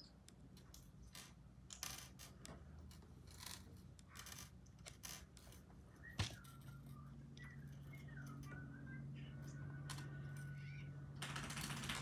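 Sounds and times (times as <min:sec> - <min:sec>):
low steady hum: 0:00.0 - 0:12.0
faint wavering whistle-like tones: 0:05.9 - 0:10.9.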